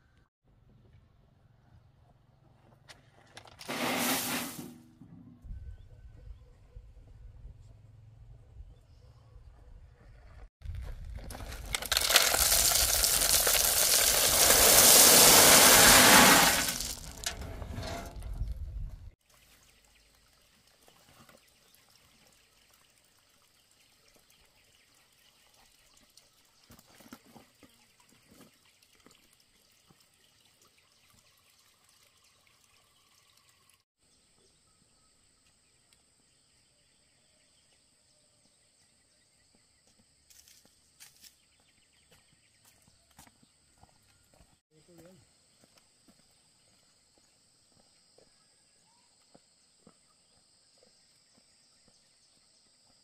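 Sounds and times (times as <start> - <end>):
gravel tumbling from wheelbarrow: 3.4 - 4.8, 10.7 - 18.6.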